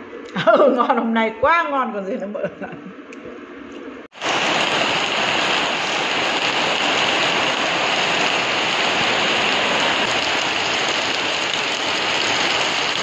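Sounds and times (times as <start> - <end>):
heavy rain pouring: 4.1 - 13.0.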